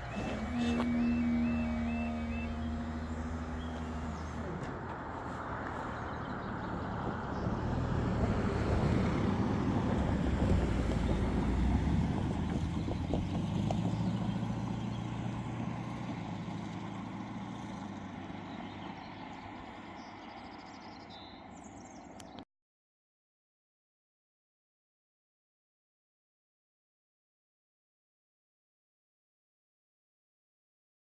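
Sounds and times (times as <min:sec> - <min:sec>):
passing vehicle engine rumble: 0:00.0 - 0:22.4.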